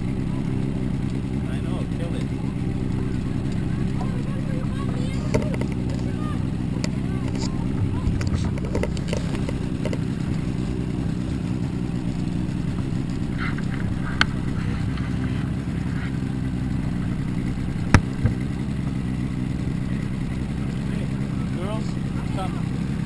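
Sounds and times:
outboard motor idling: 0:00.0 - 0:23.0
sharp knock: 0:17.9 - 0:18.4.

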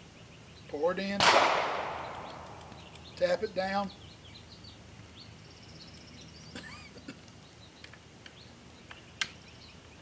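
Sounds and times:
birds chirping and trilling: 0:00.0 - 0:10.0
sharp click: 0:01.2 - 0:03.2
soft clicks: 0:02.1 - 0:03.2.

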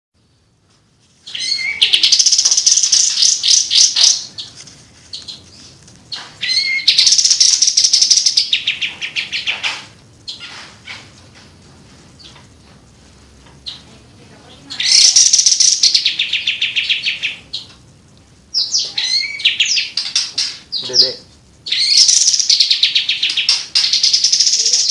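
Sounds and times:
songbird singing rapid high notes: 0:01.4 - 0:04.4, 0:06.5 - 0:08.9, 0:14.8 - 0:17.6, 0:20.7 - 0:24.9.

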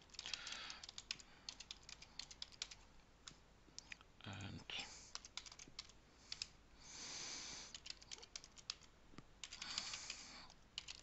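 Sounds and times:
computer keyboard keys clicking: 0:00.0 - 0:02.8, 0:05.1 - 0:06.5, 0:07.7 - 0:10.2, 0:10.8 - 0:11.0.

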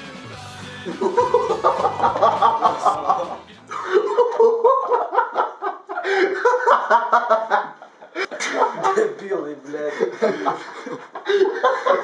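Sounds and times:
song music: 0:00.0 - 0:04.6
young men laughing: 0:00.7 - 0:12.0
men talking: 0:00.9 - 0:04.5, 0:08.2 - 0:12.0.

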